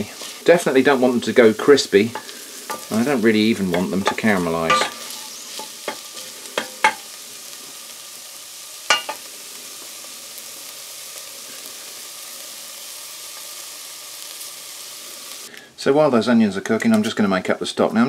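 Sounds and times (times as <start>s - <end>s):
onions sizzling in butter: 0.0s - 15.5s
wooden spoon knocking pan: 3.6s - 7.0s.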